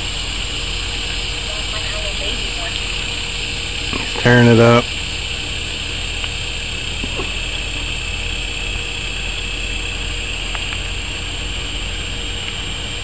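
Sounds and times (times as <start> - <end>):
faint ticks: 0.0 - 8.2, 9.1 - 11.0
constant low rumble: 0.0 - 13.0
high-pitched hiss: 0.0 - 13.0.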